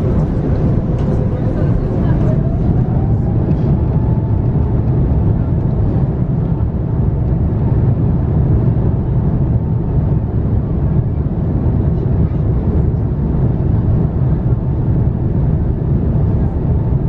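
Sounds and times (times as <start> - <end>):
faint engine whine: 0.0 - 17.0
jet engines rumbling: 0.0 - 17.0.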